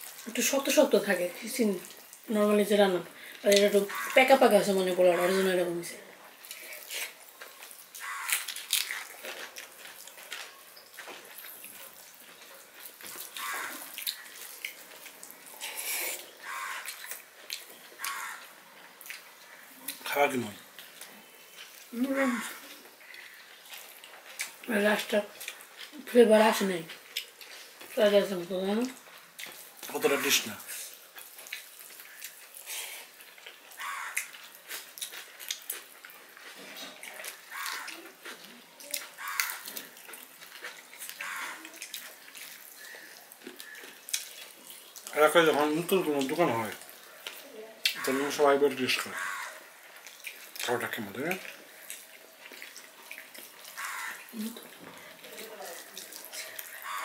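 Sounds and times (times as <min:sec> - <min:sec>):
wet chewing and lip smacks: 0:06.3 - 0:20.1, 0:20.7 - 0:21.9, 0:22.6 - 0:24.7, 0:25.3 - 0:26.0, 0:26.8 - 0:28.0, 0:28.9 - 0:30.2, 0:30.9 - 0:45.2, 0:45.9 - 0:48.3, 0:49.1 - 0:57.0.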